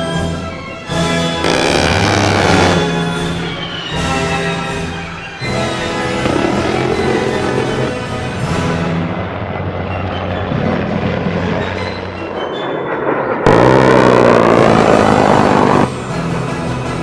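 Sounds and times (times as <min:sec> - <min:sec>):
background music: 0:00.0 - 0:17.0
jet aircraft passing low overhead: 0:05.7 - 0:16.4.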